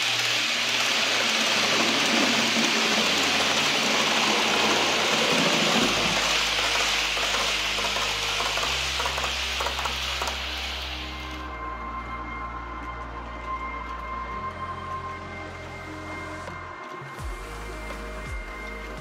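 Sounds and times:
model train wheels on rails: 0.0s - 11.4s.

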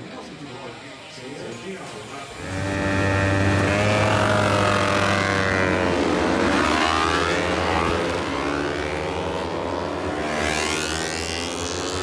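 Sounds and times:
racing motorcycles passing: 2.2s - 12.0s.

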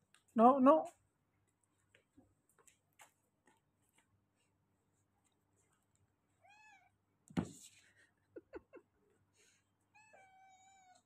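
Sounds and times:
cat meowing: 6.4s - 7.0s, 9.9s - 11.0s.

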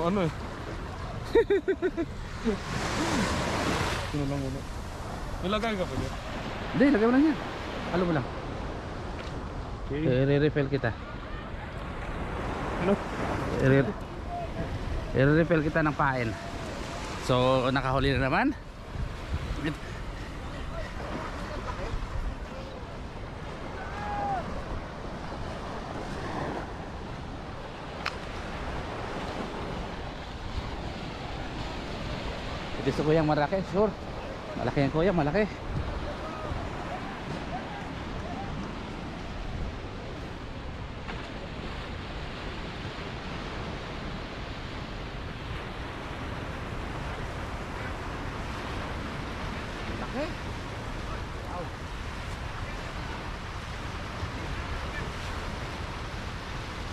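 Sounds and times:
small surf on beach: 0.0s - 56.9s
wind buffeting microphone: 11.5s - 33.2s, 33.8s - 56.9s.

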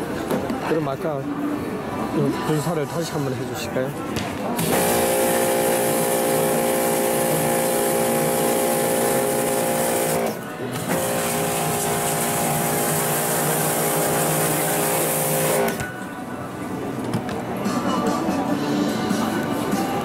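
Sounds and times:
pressure washer motor whine: 4.6s - 15.8s
water jet hissing: 4.6s - 15.8s.

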